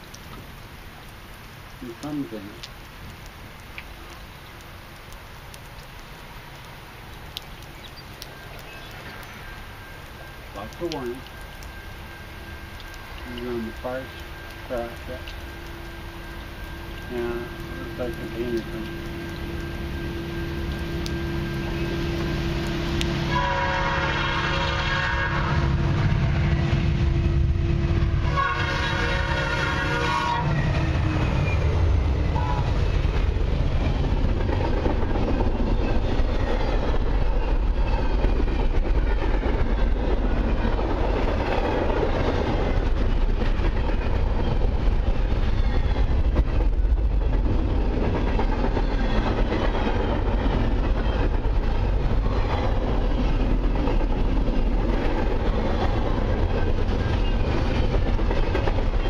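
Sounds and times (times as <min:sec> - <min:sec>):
locomotive air horn blasts: 0:23.2 - 0:26.4, 0:28.2 - 0:30.7
locomotive engine rumble: 0:25.4 - 0:59.0.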